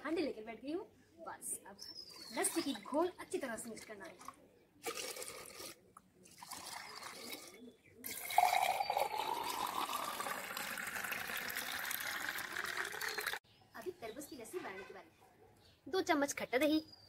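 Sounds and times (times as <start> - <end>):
liquid pouring into a glass: 4.8 - 13.4.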